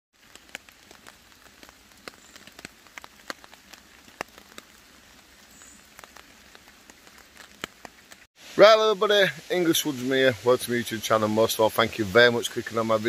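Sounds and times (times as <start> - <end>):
large raindrops tapping: 0.2 - 8.3
rain hissing on a tarp: 0.2 - 13.0.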